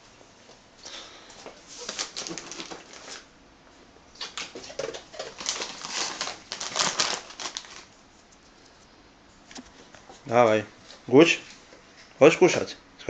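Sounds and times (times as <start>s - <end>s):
plastic bag crinkling: 1.7s - 3.3s, 4.2s - 8.0s.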